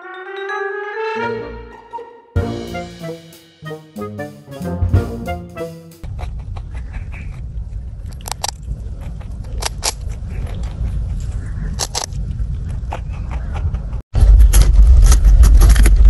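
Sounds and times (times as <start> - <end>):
music: 0.0 - 6.0.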